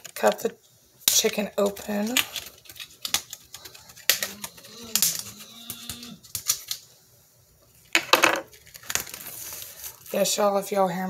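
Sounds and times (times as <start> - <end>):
plastic pack rustling clatter: 1.1 - 5.4, 8.4 - 10.2.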